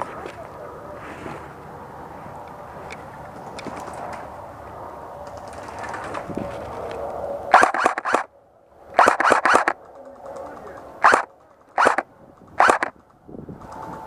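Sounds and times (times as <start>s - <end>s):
airsoft gun shots: 7.5s - 8.3s, 9.0s - 9.8s, 11.0s - 13.0s.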